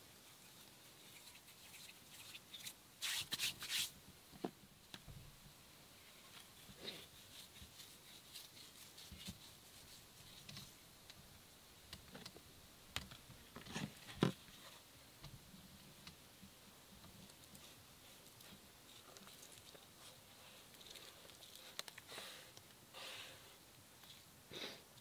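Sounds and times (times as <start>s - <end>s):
light clicks taps and scrapes: 20.7s - 22.8s.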